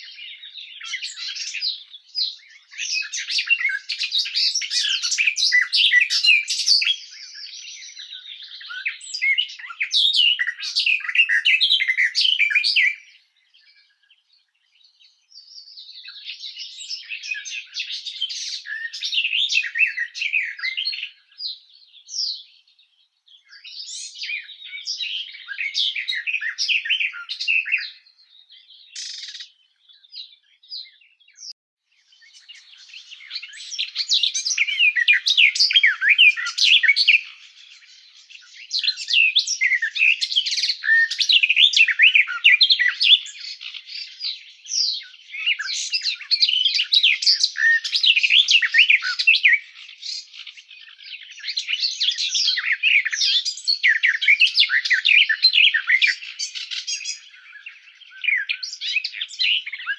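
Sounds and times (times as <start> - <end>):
bird warbling song: 0.0 - 59.9.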